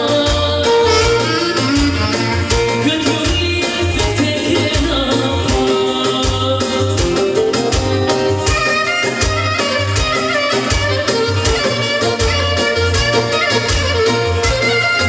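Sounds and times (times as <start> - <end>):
steady drum beat: 0.0 - 15.0
clarinet melody: 0.5 - 3.3, 7.3 - 15.0.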